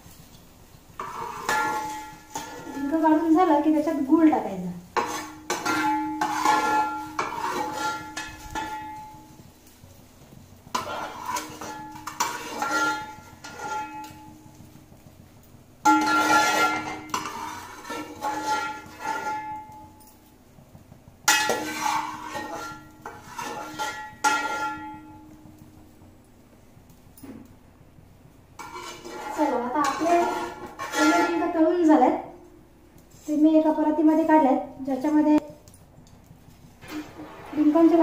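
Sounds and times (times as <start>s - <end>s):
ladle scraping metal pot: 1.0s - 3.2s, 4.9s - 9.2s, 10.7s - 14.7s, 15.8s - 19.8s, 21.3s - 25.2s, 28.6s - 31.7s, 36.8s - 38.0s.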